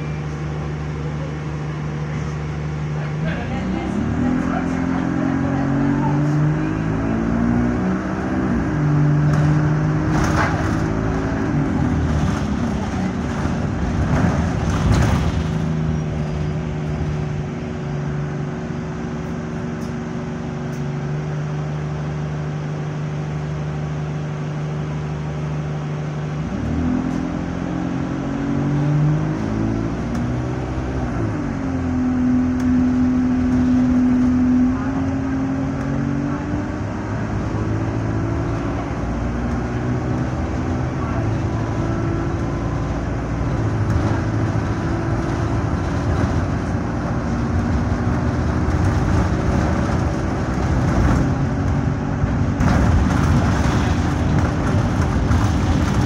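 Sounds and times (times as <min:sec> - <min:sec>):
bus engine accelerating: 0:00.0 - 0:56.0
knocks and rattles: 0:52.5 - 0:56.0.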